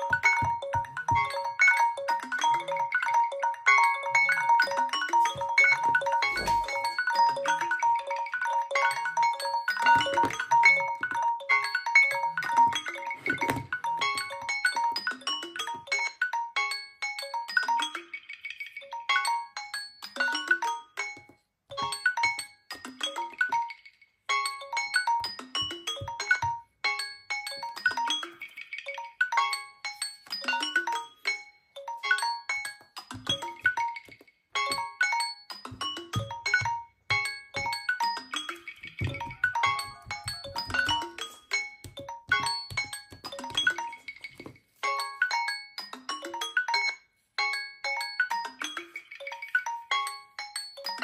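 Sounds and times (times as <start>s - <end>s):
phone alarm ringtone: 0.0s - 21.2s, 21.8s - 51.0s
phone alarm tones chiming: 39.0s - 41.4s.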